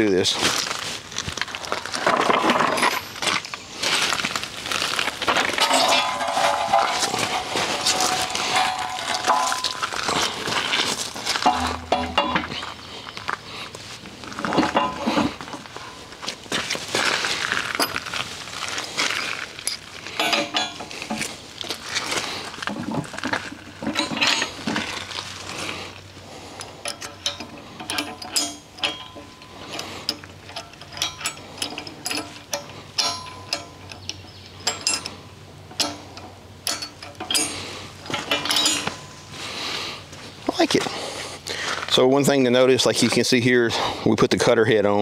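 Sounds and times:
metal clinks and knocks: 2.1 - 3.5, 5.2 - 12.8, 14.4 - 16.2, 19.5 - 21.8, 22.7 - 25.3, 26.6 - 39.4.

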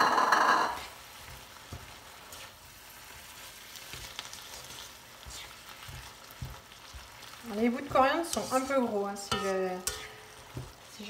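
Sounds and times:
meat sizzling in a pan: 0.0 - 11.0
plastic spatula scraping pan: 7.6 - 10.7.

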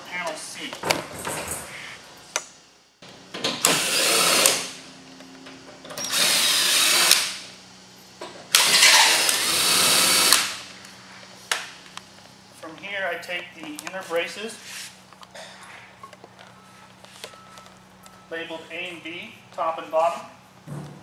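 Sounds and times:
cordless drill driving bolts: 3.4 - 4.8, 6.0 - 7.4, 8.5 - 10.6.

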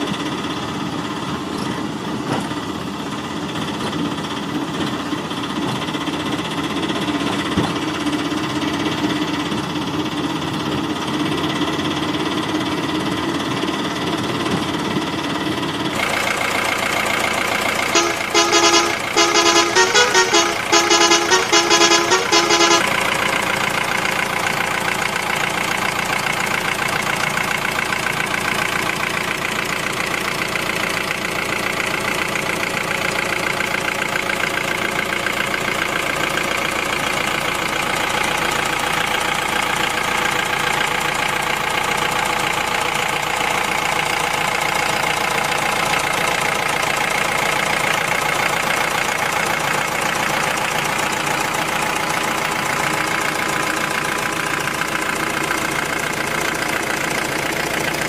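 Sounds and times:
truck engine running: 0.0 - 58.0
truck horn tooting: 17.8 - 23.5.

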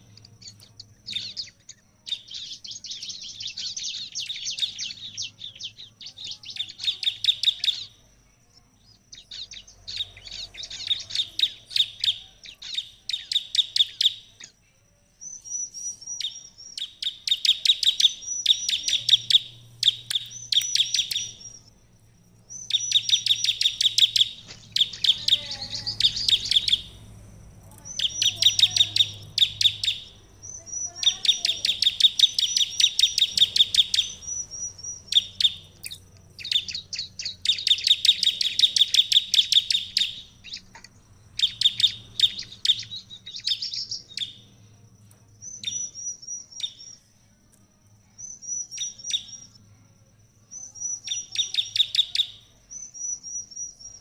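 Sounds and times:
bird singing rapid sharp chips: 0.0 - 49.8, 50.5 - 54.0.

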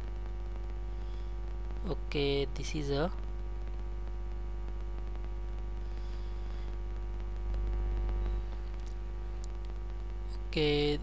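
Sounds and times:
electrical mains hum: 0.0 - 11.0
faint clicks: 4.6 - 10.2.

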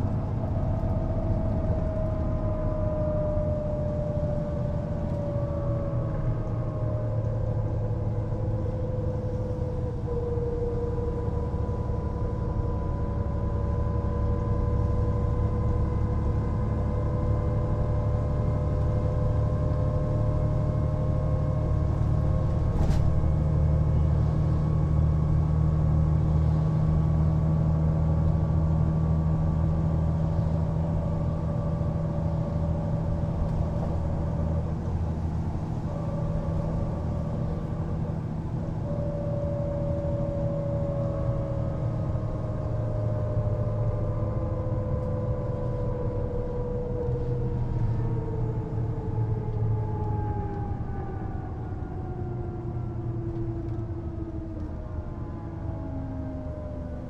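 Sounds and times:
bus diesel engine running: 0.0 - 57.0
high whine drifting in pitch: 27.4 - 55.0.

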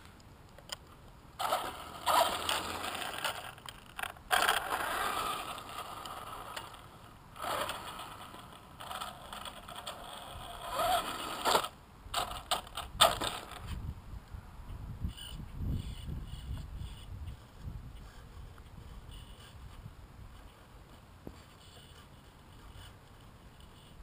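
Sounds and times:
rc truck motor whining: 1.4 - 13.8, 15.1 - 19.6, 23.6 - 24.0.

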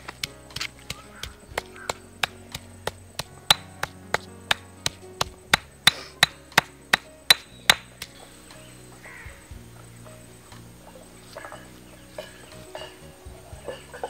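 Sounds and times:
stone pestle pounding in mortar: 0.2 - 8.2.

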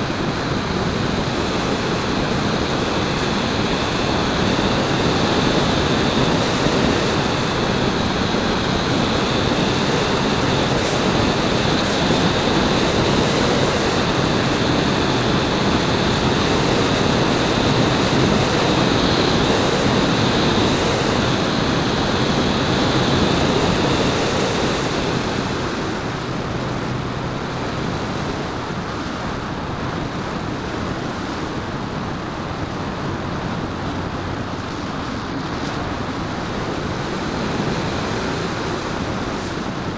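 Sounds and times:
model plane motor and propeller: 0.0 - 26.1
airflow rush: 0.0 - 39.9.

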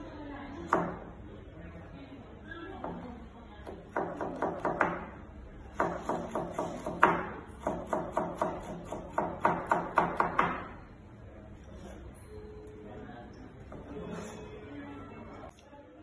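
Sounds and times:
knife chopping on cutting board: 5.8 - 10.7.

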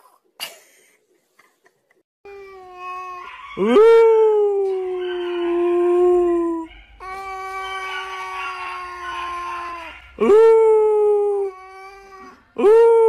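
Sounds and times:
animal howling: 2.8 - 12.8.

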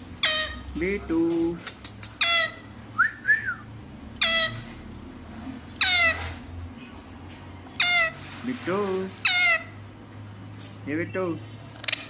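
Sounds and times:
parakeet squawks: 0.2 - 0.8, 2.1 - 2.8, 4.2 - 4.8, 5.8 - 6.5, 7.7 - 8.4, 9.2 - 9.8.

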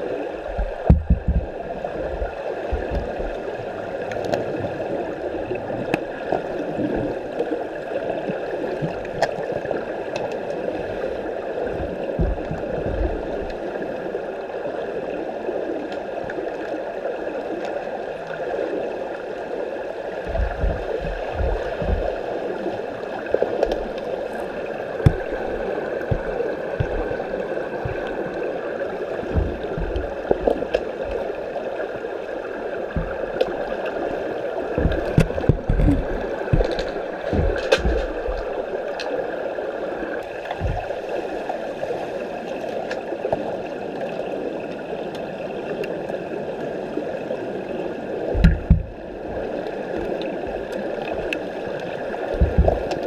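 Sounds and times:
faint steady hums: 0.0 - 53.0
underwater water rush: 0.0 - 53.0
low thumps: 0.5 - 3.4, 11.8 - 13.5, 20.2 - 22.3, 25.0 - 28.3, 29.2 - 31.2, 32.9 - 33.4, 34.8 - 38.6, 48.4 - 49.0, 52.4 - 52.9.

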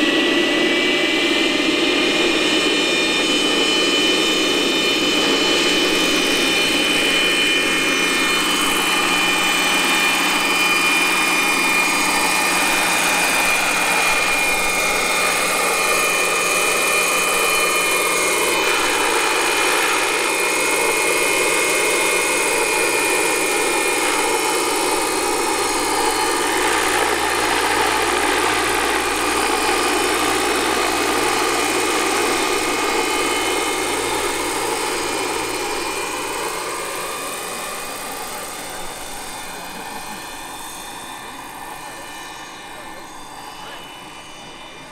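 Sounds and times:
high turbine whine: 0.0 - 44.9
rotor rushing: 0.0 - 44.9.

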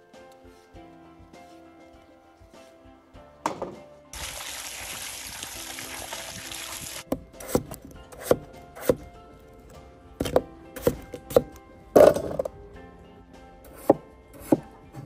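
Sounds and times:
knife chopping on wooden board: 7.1 - 9.1, 10.2 - 12.4, 13.7 - 15.0.

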